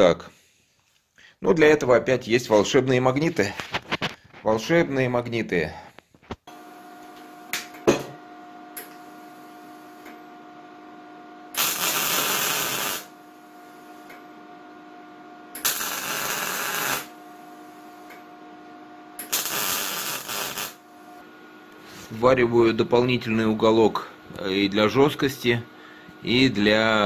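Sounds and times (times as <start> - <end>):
electrical hum: 1.2 - 27.0
arc welding crackling and hissing: 11.6 - 14.2, 15.6 - 18.2, 19.2 - 21.2.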